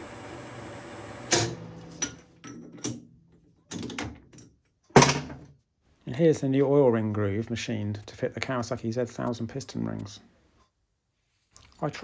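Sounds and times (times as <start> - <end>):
steady hum with high whine: 0.0 - 1.8
metal clicks and knocks: 3.7 - 5.5.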